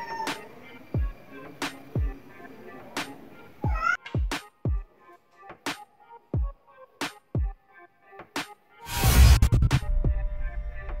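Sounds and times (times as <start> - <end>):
electronic music with beat: 0.3 - 2.2, 3.0 - 11.0.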